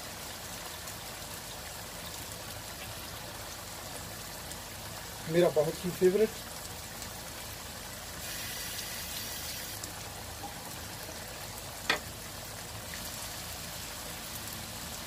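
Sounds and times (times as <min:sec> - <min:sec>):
sauce sizzling in a wok: 0:07.1 - 0:15.0.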